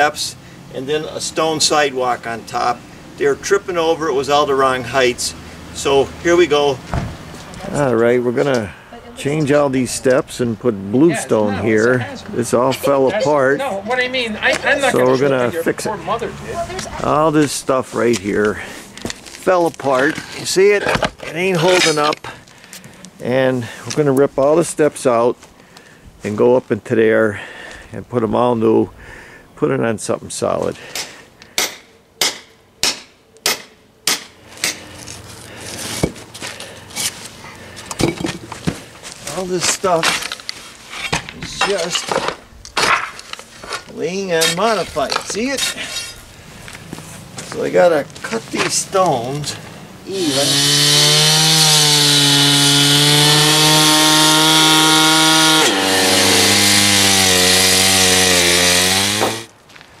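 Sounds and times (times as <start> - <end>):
hammer striking stone: 31.0 - 34.8
saw blade cutting stone: 50.1 - 59.5
cut-off saw engine running: 50.2 - 59.5.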